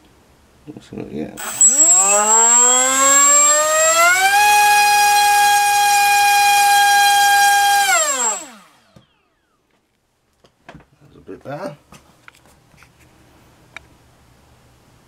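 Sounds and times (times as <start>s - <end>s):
drone motor whining: 1.4s - 9.3s.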